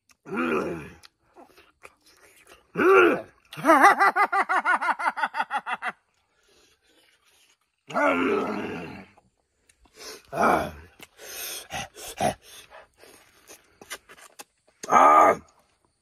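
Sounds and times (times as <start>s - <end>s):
faint chewing clicks: 0.9s - 2.7s, 9.2s - 10.3s.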